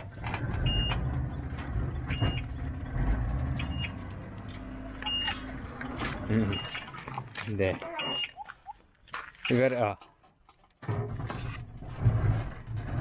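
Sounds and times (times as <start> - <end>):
vehicle rumble: 0.0 - 13.0
reversing buzzer beeping: 3.5 - 5.6, 6.4 - 6.9, 8.0 - 8.4.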